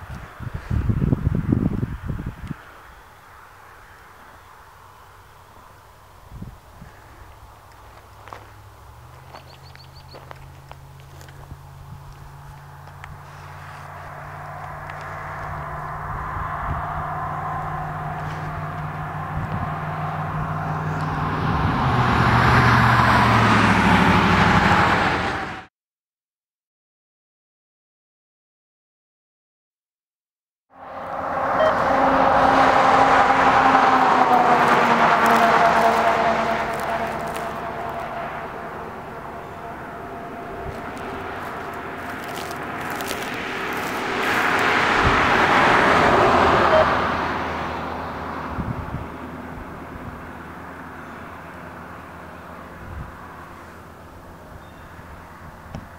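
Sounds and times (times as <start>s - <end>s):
vehicle engine hum: 0.0s - 25.7s, 30.7s - 55.9s
tyre noise: 40.5s - 46.8s.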